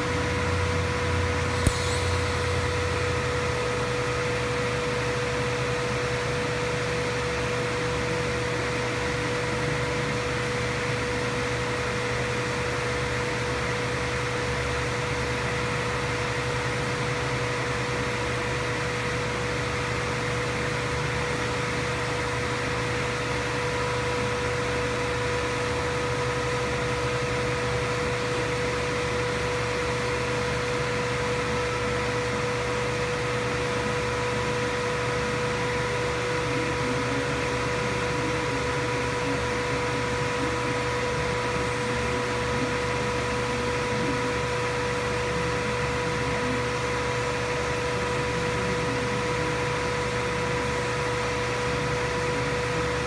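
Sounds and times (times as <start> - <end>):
electric machine hum: 0.0 - 5.9
high-pitched whine: 0.0 - 6.1
light hiss: 1.5 - 3.8.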